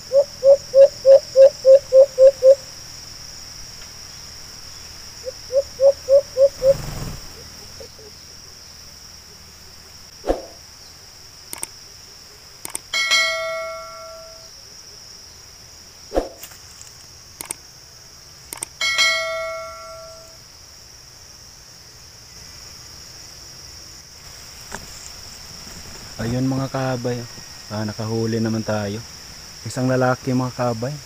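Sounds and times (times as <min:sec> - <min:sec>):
high insect drone: 0:00.0 - 0:31.0
clicks: 0:11.5 - 0:11.7, 0:12.6 - 0:12.9, 0:17.4 - 0:17.6, 0:18.5 - 0:18.8
bell-like metallic rings: 0:12.9 - 0:14.5, 0:18.8 - 0:20.4.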